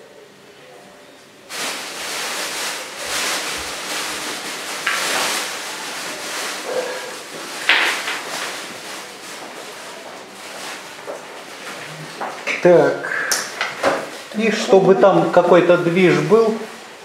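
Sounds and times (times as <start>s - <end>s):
rustling and crinkling handling noise: 1.5s - 17.0s.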